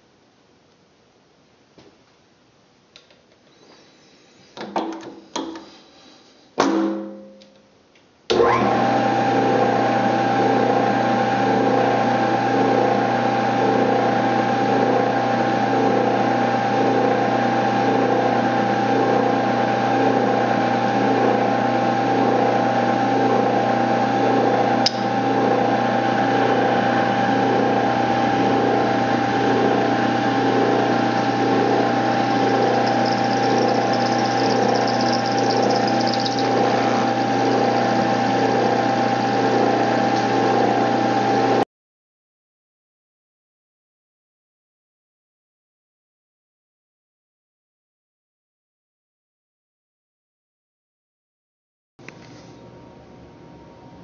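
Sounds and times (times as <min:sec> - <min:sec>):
sharp click: 0:24.8 - 0:25.1
milling machine whining: 0:26.6 - 0:41.6.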